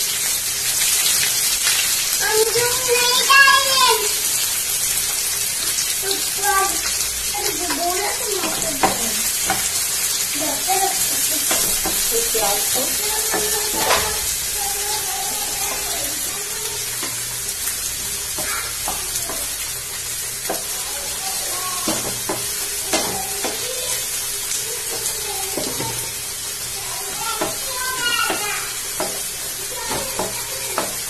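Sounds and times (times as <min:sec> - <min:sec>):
onions sizzling in hot oil: 0:00.0 - 0:31.0
spatula scraping pan: 0:07.4 - 0:17.2.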